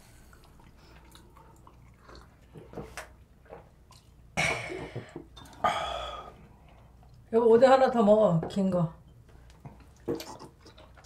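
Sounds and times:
people sipping and swallowing: 0:00.2 - 0:07.3, 0:09.4 - 0:11.0.

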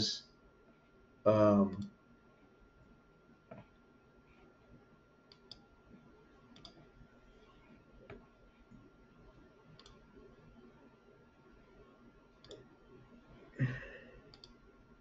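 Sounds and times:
computer mouse clicks: 0:05.3 - 0:05.7, 0:06.4 - 0:08.2, 0:09.7 - 0:10.2, 0:12.4 - 0:12.7, 0:14.3 - 0:14.6.

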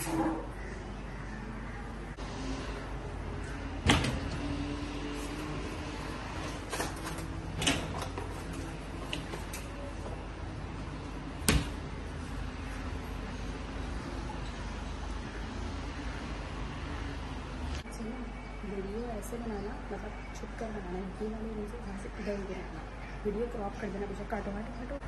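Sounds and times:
cupboard doors knocking shut: 0:11.4 - 0:11.8.

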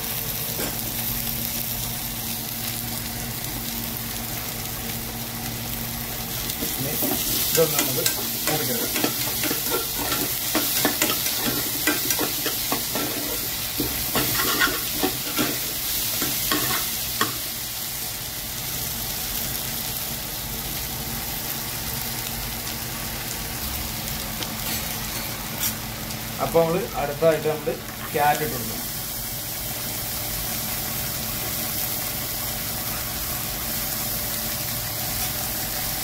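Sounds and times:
food sizzling in oil: 0:00.0 - 0:36.0
spatula scraping a pan: 0:07.0 - 0:15.7, 0:24.6 - 0:25.8.

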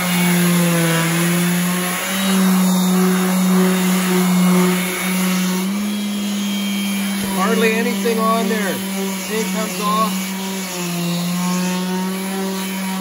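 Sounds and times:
orbital sander running: 0:00.0 - 0:13.0.

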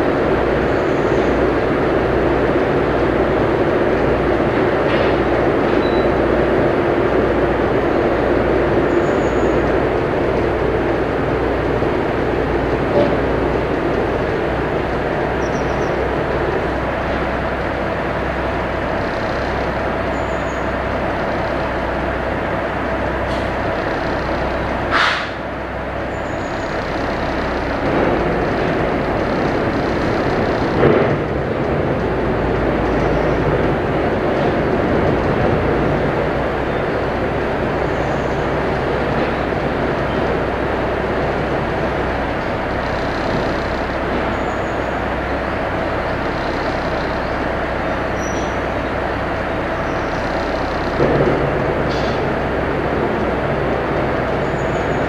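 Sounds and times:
boat engine running: 0:00.0 - 0:55.0.

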